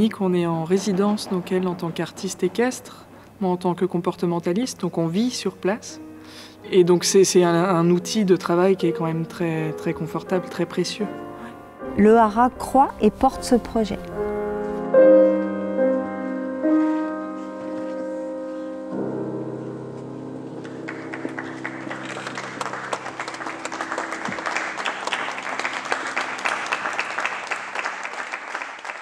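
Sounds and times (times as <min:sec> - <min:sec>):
audience applause: 0:20.6 - 0:29.0.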